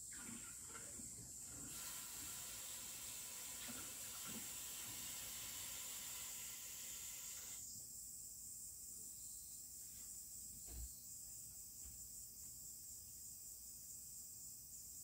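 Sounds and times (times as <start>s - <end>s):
water running from a tap: 1.5s - 7.6s.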